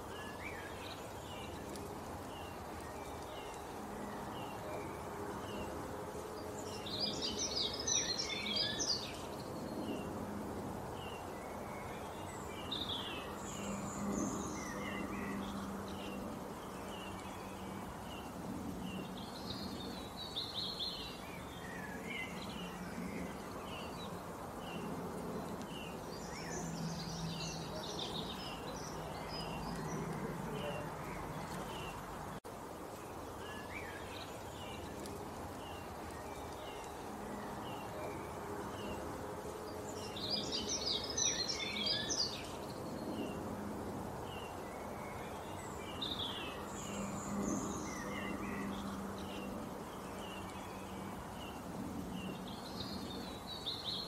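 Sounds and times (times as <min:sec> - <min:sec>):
birds chirping: 0:00.0 - 0:10.3, 0:10.9 - 0:54.0
bird song bursts: 0:39.8 - 0:43.4.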